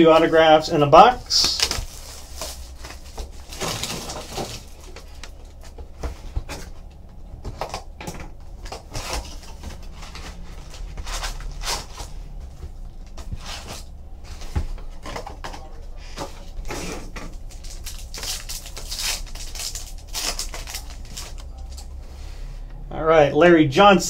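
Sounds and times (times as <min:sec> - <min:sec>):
foil packs rustling and crinkling: 0:00.0 - 0:22.0.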